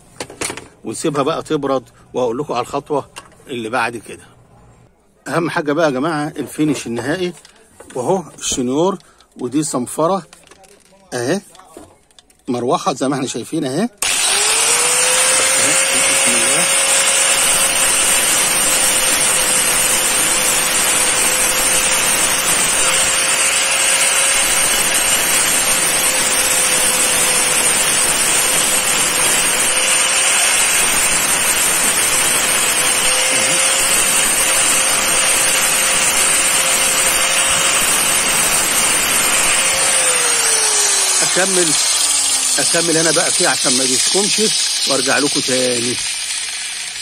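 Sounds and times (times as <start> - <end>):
angle grinder sanding plastic: 14.0 - 47.0.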